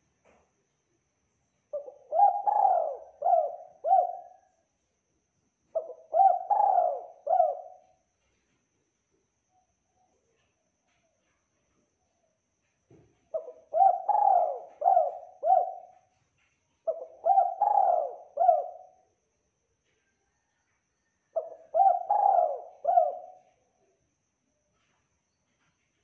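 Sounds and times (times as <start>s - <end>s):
dove cooing: 1.8s - 4.5s, 5.8s - 7.8s, 13.3s - 16.1s, 16.8s - 19.0s, 21.4s - 23.5s.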